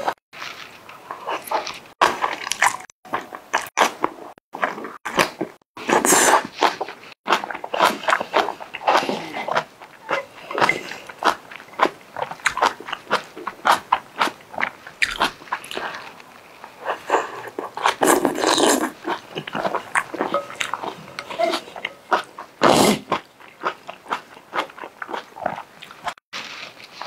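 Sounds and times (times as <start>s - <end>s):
wet chewing: 0.1s - 27.0s
noodle slurping: 5.8s - 26.2s.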